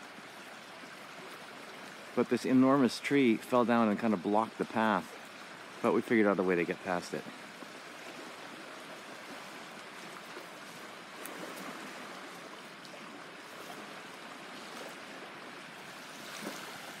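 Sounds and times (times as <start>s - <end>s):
creek water running: 0.0s - 17.0s.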